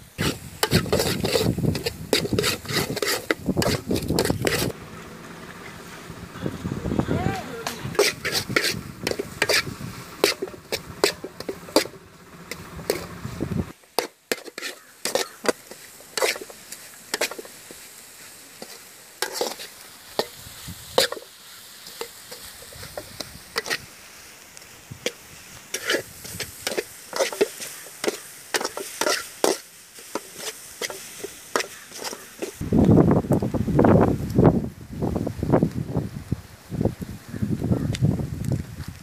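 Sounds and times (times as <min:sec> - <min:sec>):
ladle scraping metal pot: 0:00.2 - 0:04.8, 0:07.8 - 0:23.9, 0:25.0 - 0:32.6
faint sizzle: 0:08.8 - 0:32.6.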